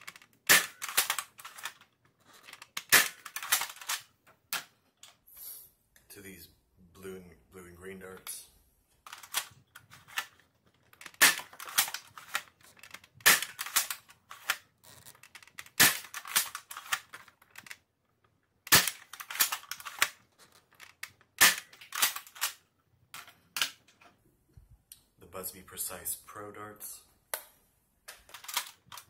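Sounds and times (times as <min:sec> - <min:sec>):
toy blaster shots: 0:00.4 - 0:01.4, 0:02.8 - 0:03.9.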